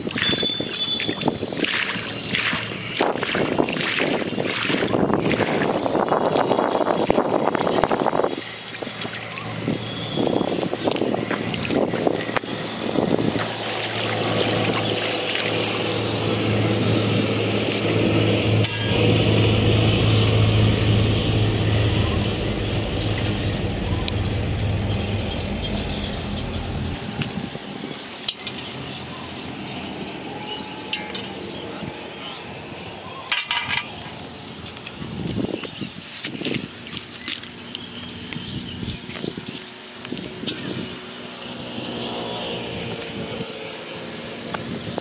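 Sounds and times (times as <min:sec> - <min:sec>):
water splashing: 0:00.0 - 0:28.9
motor engine droning: 0:00.0 - 0:36.0, 0:36.6 - 0:45.0.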